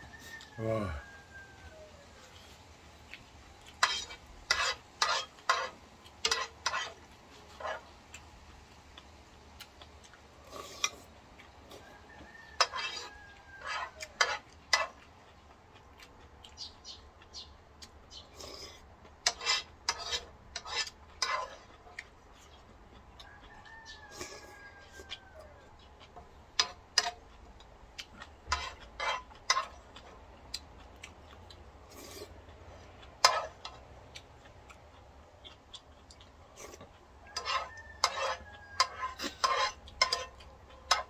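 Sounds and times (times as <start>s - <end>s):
faint rooster crowing: 0.0s - 2.7s, 11.6s - 15.0s, 23.1s - 26.8s, 37.1s - 41.0s.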